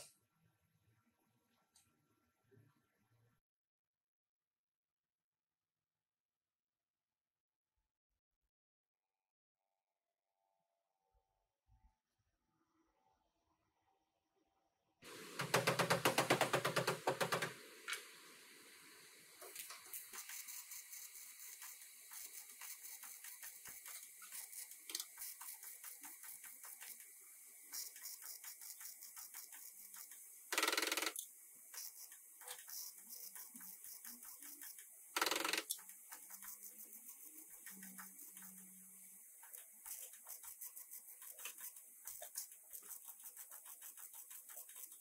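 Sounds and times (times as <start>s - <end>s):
hiss: 15.0s - 30.6s
welding arc crackling: 19.4s - 27.1s.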